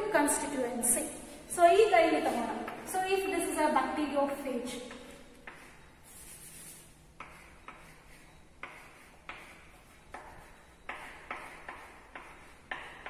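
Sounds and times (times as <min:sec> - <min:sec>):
chalk scratching on chalkboard: 0:05.4 - 0:13.0.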